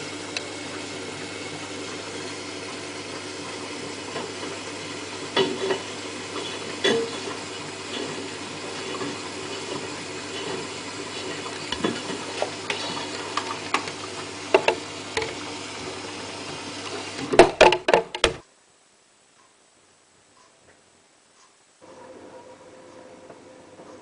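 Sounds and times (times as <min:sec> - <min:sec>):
motor hum: 0:00.0 - 0:18.4
washing machine drum sloshing: 0:00.0 - 0:18.4
plastic cap knocking in drum: 0:17.4 - 0:18.4.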